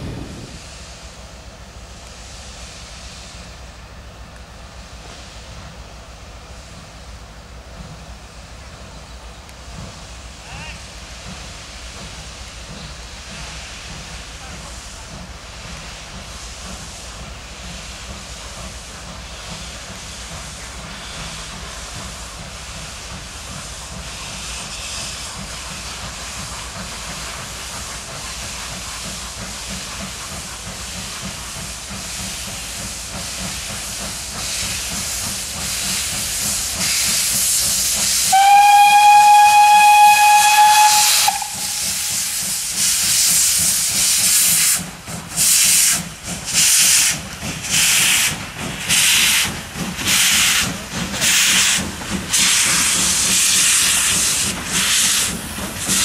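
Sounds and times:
rhythmic steam locomotive blasts: 0:00.0 - 0:56.0
steam hissing: 0:00.0 - 0:56.0
steam whistle blast: 0:38.2 - 0:42.5.

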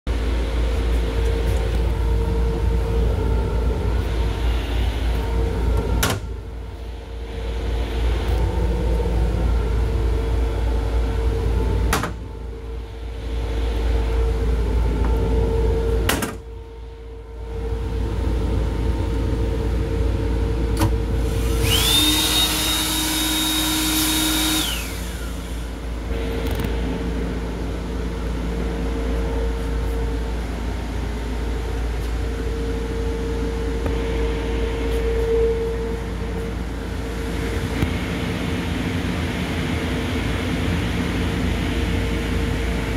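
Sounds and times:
train interior rumble and hum: 0:00.1 - 0:42.9
hand dryer whining and blowing: 0:21.1 - 0:26.1.

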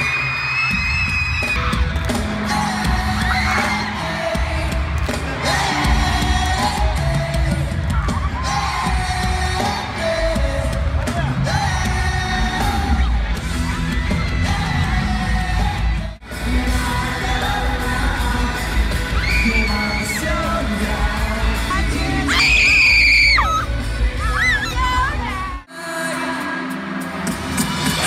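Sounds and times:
crowd yelling and whooping: 0:00.0 - 0:25.7
live pop-rock band: 0:00.0 - 0:28.0
lead singer: 0:01.4 - 0:28.0.

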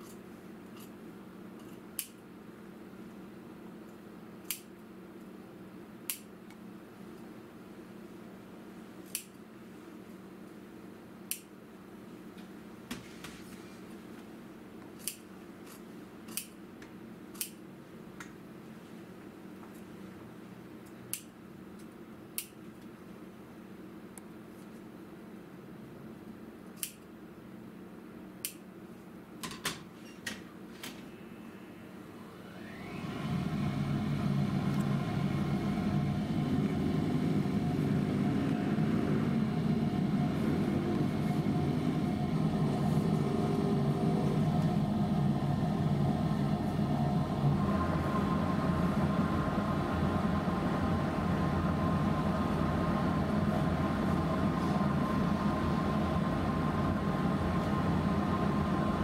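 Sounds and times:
scissor snips: 0:01.6 - 0:02.2, 0:04.4 - 0:04.7, 0:06.1 - 0:06.3, 0:09.0 - 0:09.4, 0:11.3 - 0:11.5, 0:15.0 - 0:16.6, 0:17.4 - 0:17.6, 0:26.8 - 0:27.1
thin steady whine: 0:31.0 - 0:59.0.

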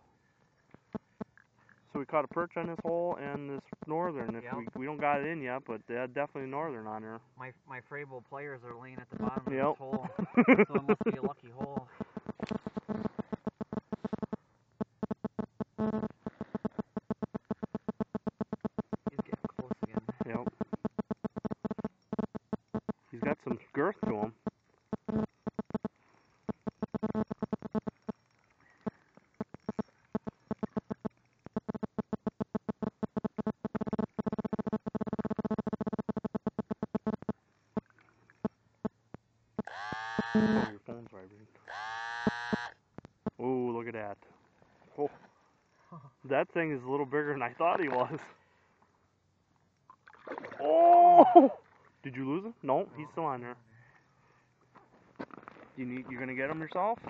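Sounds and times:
electronic buzzing pulse: 0:09.0 - 0:39.0, 0:39.6 - 0:40.8, 0:41.7 - 0:43.4.

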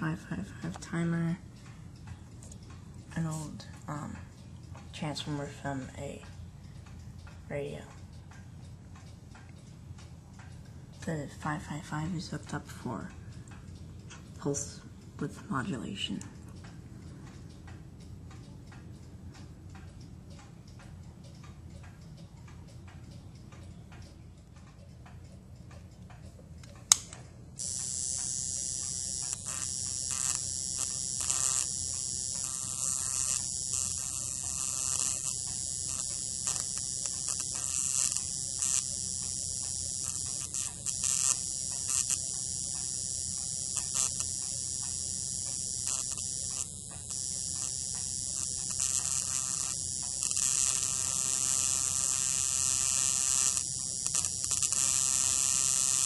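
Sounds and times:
sharp click: 0:26.6 - 0:56.0
sparks crackling: 0:26.9 - 0:56.0
high-pitched electric buzz: 0:27.6 - 0:56.0.

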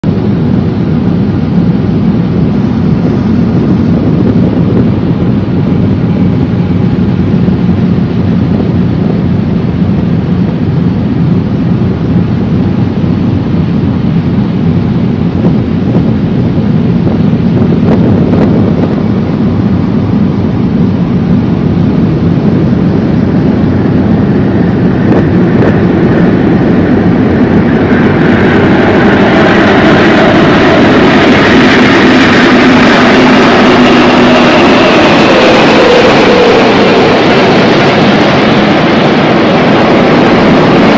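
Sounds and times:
jet aircraft roar: 0:00.0 - 0:40.9
wind buffeting microphone: 0:00.0 - 0:40.9
water rushing past ship: 0:13.4 - 0:40.9.

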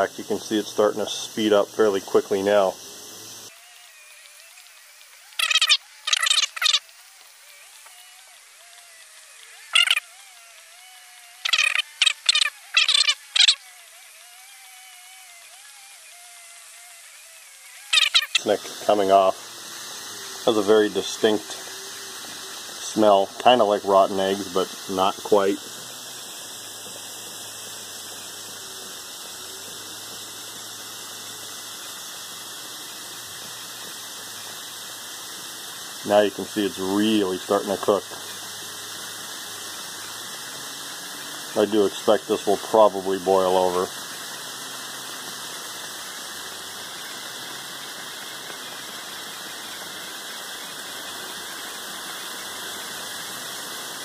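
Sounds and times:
liquid fizzing and bubbling: 0:04.5 - 0:10.0, 0:17.9 - 0:54.0.

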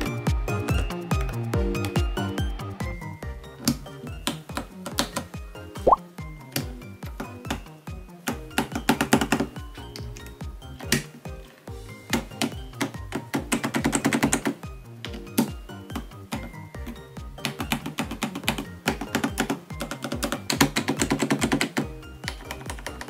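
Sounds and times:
background music with beat: 0:00.0 - 0:23.0
mechanical keyboard keys clacking: 0:08.3 - 0:10.2, 0:12.1 - 0:23.0.

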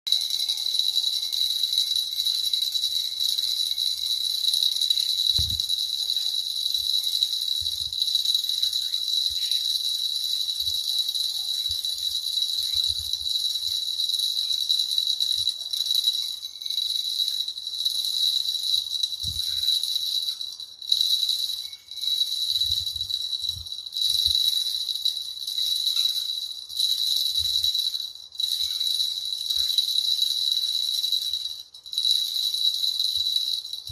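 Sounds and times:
small jingle bells jingling: 0:00.0 - 0:33.9.

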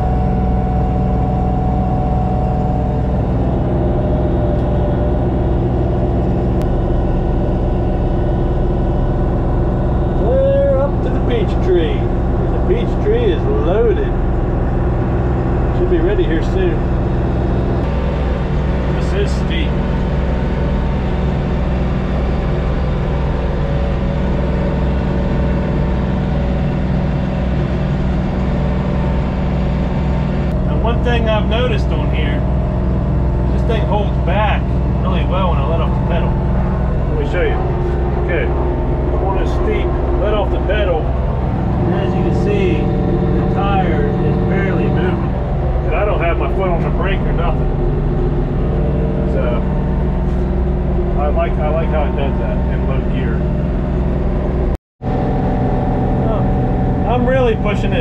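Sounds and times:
thin whine: 0:00.0 - 0:58.0
tractor diesel engine under load: 0:00.0 - 0:58.0.

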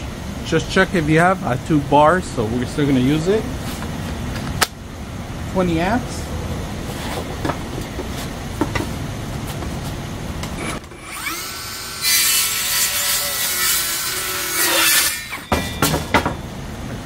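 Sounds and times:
circular saw motor whine: 0:10.5 - 0:17.0
saw blade cutting wood: 0:10.6 - 0:16.3.

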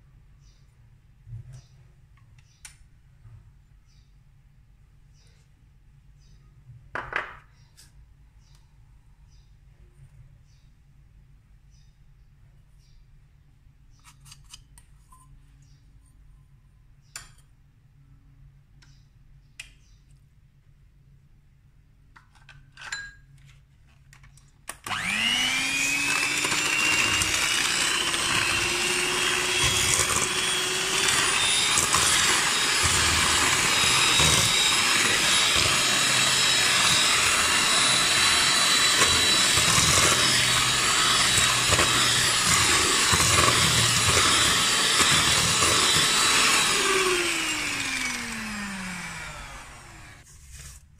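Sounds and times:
electric hand mixer whirring: 0:24.8 - 0:50.2.

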